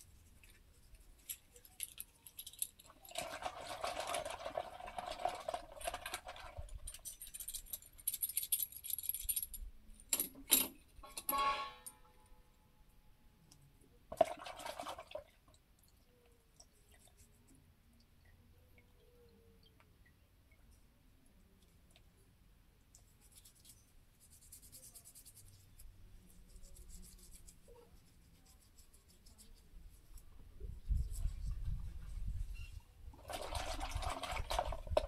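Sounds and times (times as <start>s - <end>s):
metal tools clinking and rattling: 1.2s - 3.1s, 6.8s - 12.0s.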